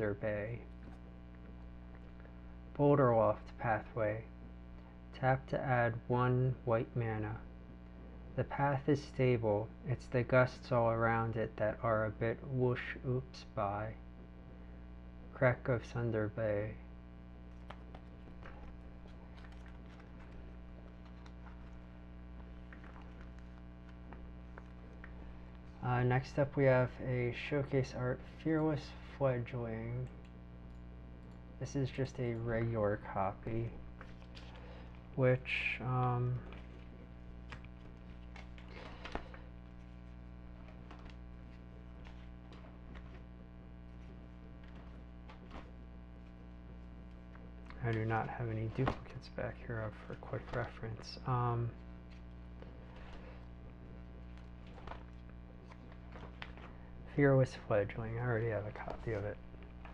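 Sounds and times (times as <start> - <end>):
electrical mains hum: 0.0 - 59.9
cards rustling in plastic sleeve: 17.4 - 26.9, 32.4 - 59.9.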